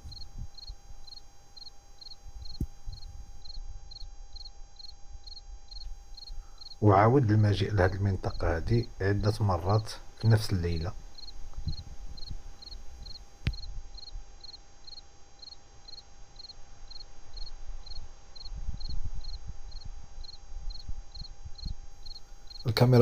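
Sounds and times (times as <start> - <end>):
cricket chirping: 0.0 - 23.0
faint steady whine: 0.0 - 23.0.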